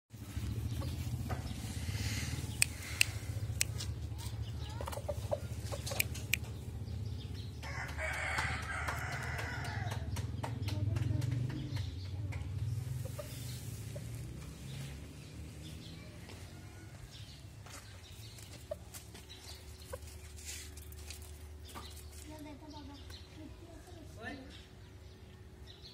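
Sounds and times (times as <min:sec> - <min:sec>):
sharp clicks: 0:05.8 - 0:06.6
rooster crowing: 0:07.6 - 0:10.0, 0:16.2 - 0:17.2.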